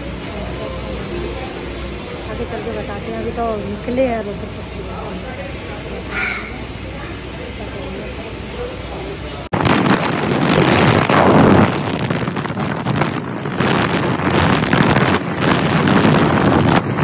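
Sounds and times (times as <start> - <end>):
wind rushing over microphone: 9.5 - 17.0.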